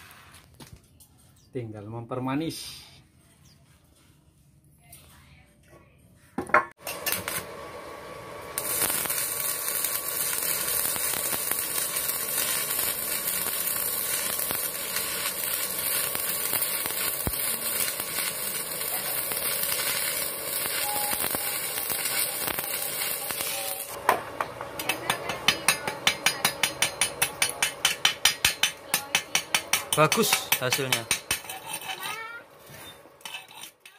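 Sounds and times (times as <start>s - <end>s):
welding arc crackling and sizzling: 6.8s - 33.9s.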